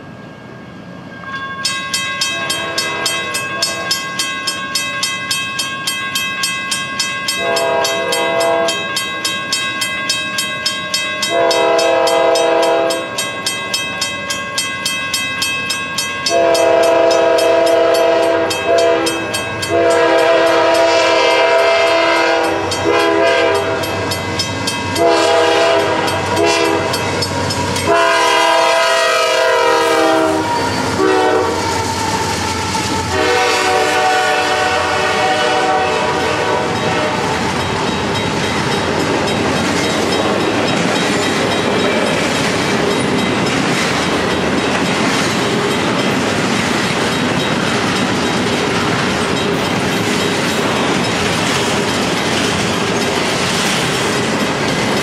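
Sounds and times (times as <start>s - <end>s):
railroad crossing bell ringing: 0.0s - 55.0s
train air horn blasts: 2.3s - 3.9s, 7.4s - 8.9s, 11.3s - 13.2s, 16.3s - 24.1s, 25.0s - 37.5s
locomotive rumble: 16.3s - 55.0s.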